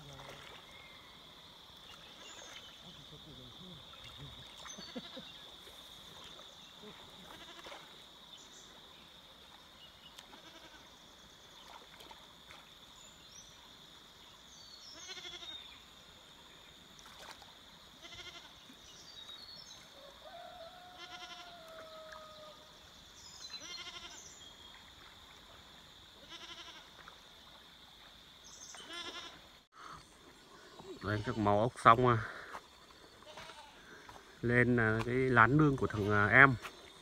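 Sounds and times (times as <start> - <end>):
faint quavering animal calls: 1.9 - 8.0, 10.2 - 10.9, 14.8 - 15.7, 18.0 - 18.7, 19.8 - 22.7, 23.5 - 24.4, 26.2 - 27.2, 28.6 - 34.4.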